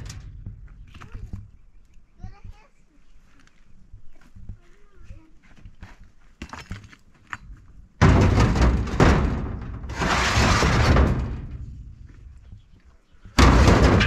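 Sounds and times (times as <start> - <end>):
loud crash: 0.0 - 0.6, 8.0 - 12.0, 13.4 - 14.0
stones clattering in metal truck bed: 0.0 - 1.5, 8.0 - 12.6, 13.4 - 14.0.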